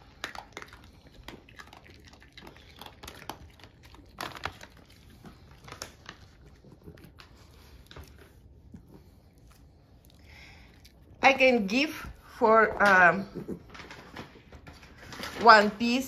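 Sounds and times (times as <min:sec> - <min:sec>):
packaging crinkling: 0:00.0 - 0:08.4.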